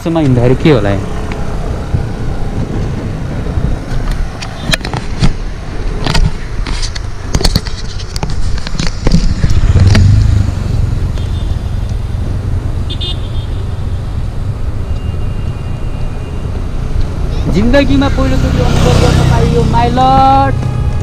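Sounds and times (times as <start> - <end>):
low road rumble: 0.0 - 21.0
motorcycle passing: 0.4 - 4.1, 9.2 - 14.8, 15.7 - 21.0.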